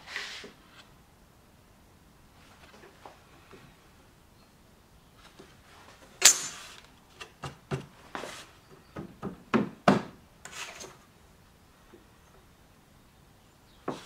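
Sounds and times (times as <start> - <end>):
steel tool clattering on wood: 6.2 - 6.8
wooden knocks and taps: 7.2 - 7.9, 8.9 - 10.2.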